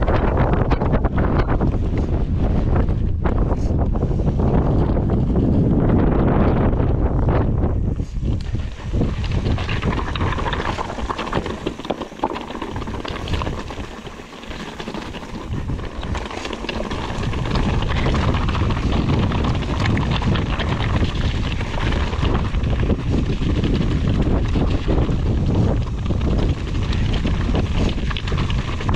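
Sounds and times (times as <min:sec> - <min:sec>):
wind buffeting microphone: 0:00.0 - 0:28.9
small clicks and rattles: 0:08.3 - 0:28.9.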